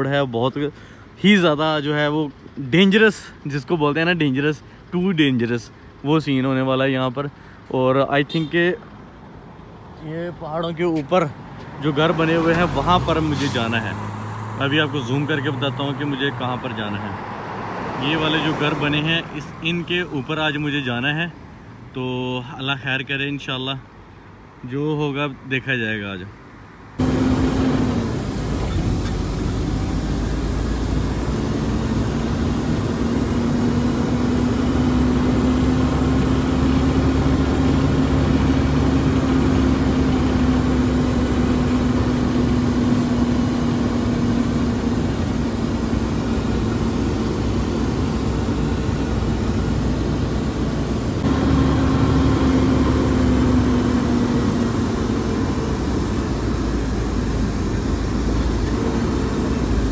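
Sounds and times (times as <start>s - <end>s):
truck engine droning: 11.6s - 20.3s, 27.0s - 59.9s.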